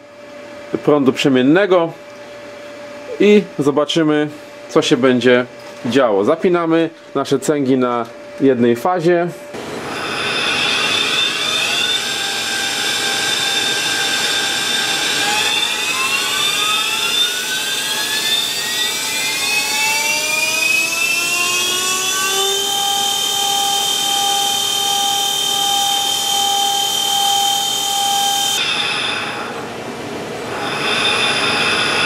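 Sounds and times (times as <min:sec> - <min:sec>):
spindle whine: 0:09.5 - 0:32.0.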